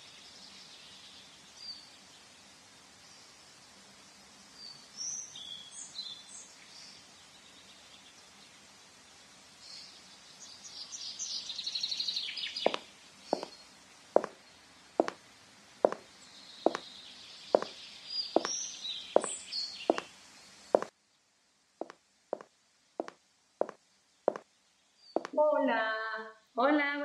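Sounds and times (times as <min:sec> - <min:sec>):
birds chirping: 0:04.6 - 0:20.9, 0:22.4 - 0:25.5
footsteps on tiled floor: 0:12.6 - 0:13.6, 0:14.2 - 0:14.4, 0:15.0 - 0:15.2, 0:15.8 - 0:16.9, 0:17.6 - 0:17.8, 0:18.4 - 0:18.6, 0:19.2 - 0:20.1, 0:21.8 - 0:24.5, 0:25.2 - 0:25.4.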